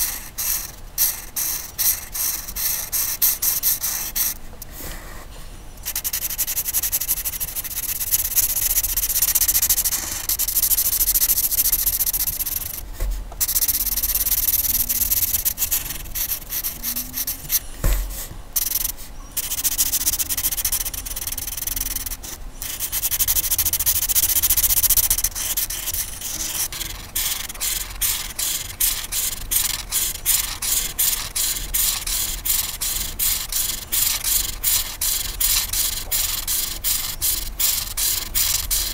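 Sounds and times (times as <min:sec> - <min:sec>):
colouring tool scratching on paper: 0:00.0 - 0:05.2, 0:05.8 - 0:38.9.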